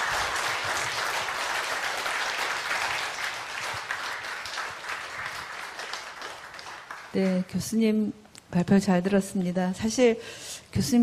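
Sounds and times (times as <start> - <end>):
large audience applauding: 0.0 - 7.6.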